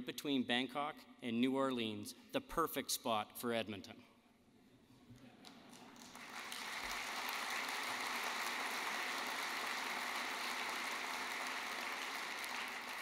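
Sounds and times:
audience applause: 5.8s - 13.0s.

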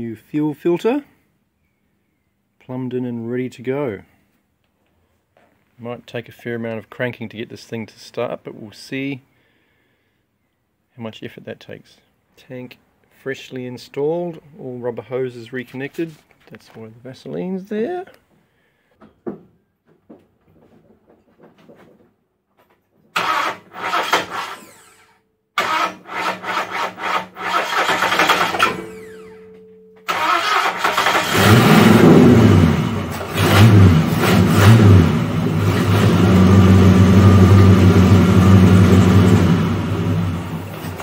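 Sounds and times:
starter motor cranking: 23.2s - 29.4s, 30.1s - 32.5s
car engine revving and idling: 30.7s - 41.0s.

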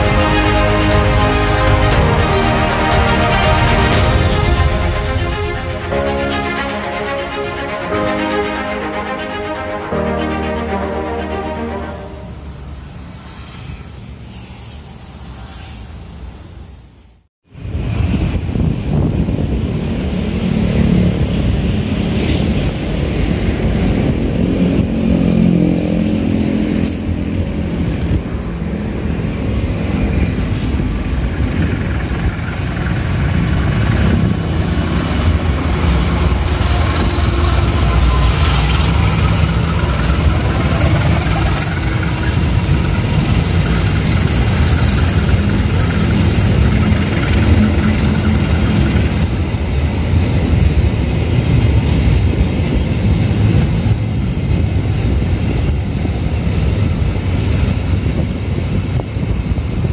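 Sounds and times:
locomotive engine rumbling: 0.0s - 12.8s, 28.9s - 58.0s
train wheels clicking over rails: 30.7s - 59.9s.

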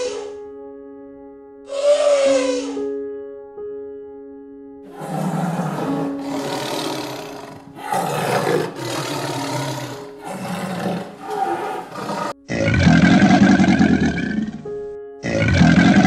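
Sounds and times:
background music: 0.0s - 16.0s
big cat growling: 4.9s - 16.0s.

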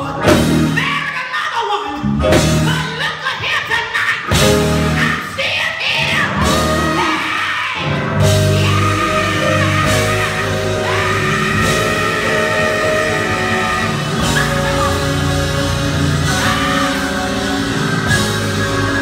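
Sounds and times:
band bass: 0.0s - 19.0s
drums: 0.0s - 19.0s
keyboard: 0.0s - 19.0s
woman singing gospel: 8.3s - 19.0s.

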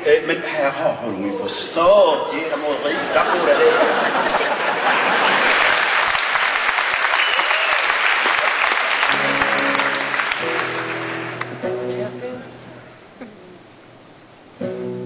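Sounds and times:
audience applauding: 3.4s - 12.0s
acoustic guitar chords: 9.1s - 13.8s, 14.4s - 15.0s.

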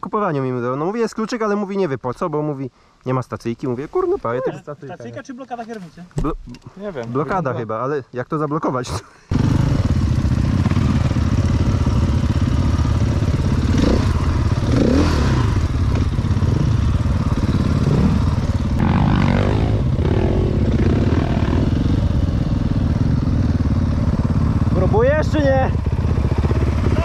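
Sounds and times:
dirt bike engine revving: 9.3s - 27.0s.

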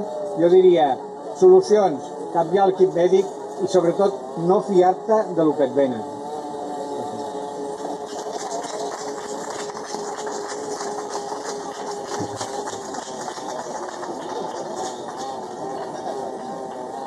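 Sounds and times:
steady hum: 0.0s - 17.0s
audience applauding: 7.8s - 17.0s.

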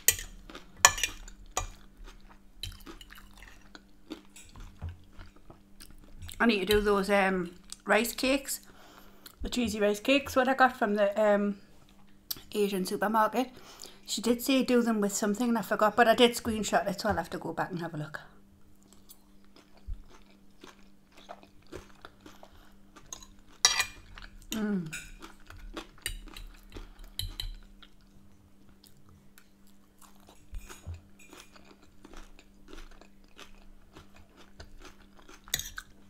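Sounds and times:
fork clinking and scraping plate: 0.0s - 1.8s, 23.1s - 24.0s, 35.5s - 35.9s
close-up chewing and crunching: 0.0s - 6.5s, 18.7s - 36.0s.

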